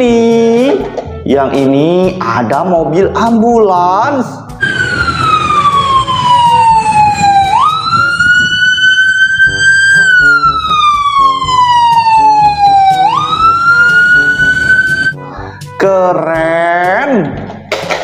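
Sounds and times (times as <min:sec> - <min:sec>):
toy siren wailing: 0:04.6 - 0:15.2.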